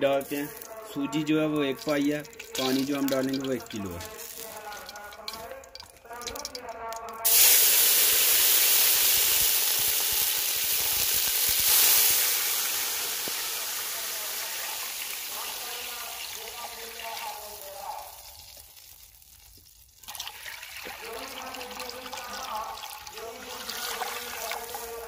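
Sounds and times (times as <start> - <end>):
water pouring into pan: 0.0 - 25.0
water hissing in hot oil: 7.2 - 25.0.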